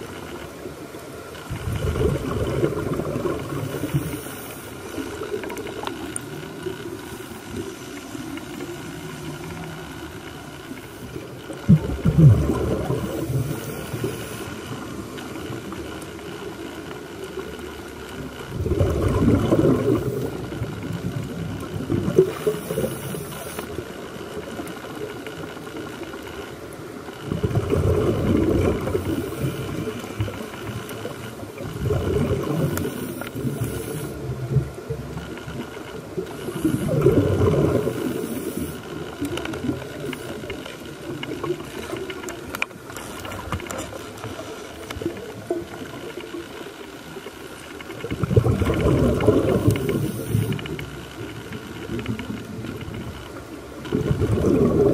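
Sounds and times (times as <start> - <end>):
diver exhaling bubbles: 1.5 - 4.3, 11.6 - 14.1, 18.5 - 23.2, 27.2 - 30.4, 31.1 - 34.7, 36.2 - 38.7, 48.1 - 50.9, 53.8 - 54.9
watery hiss: 2.1 - 5.8, 12.1 - 15.0, 22.1 - 23.8, 28.0 - 30.8, 32.1 - 34.5, 36.3 - 39.0, 48.6 - 50.9.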